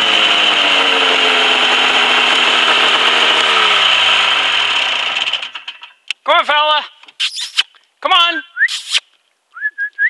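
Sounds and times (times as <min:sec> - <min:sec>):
snowmobile engine running: 0:00.0 - 0:05.6.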